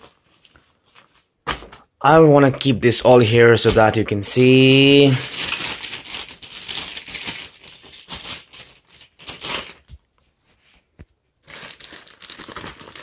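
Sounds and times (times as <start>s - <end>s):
plastic wrapping crinkling: 3.9s - 10.1s, 11.4s - 13.0s.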